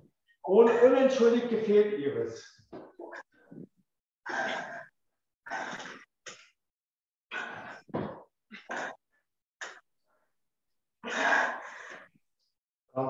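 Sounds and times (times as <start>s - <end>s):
person breathing hard: 11.2s - 12.1s.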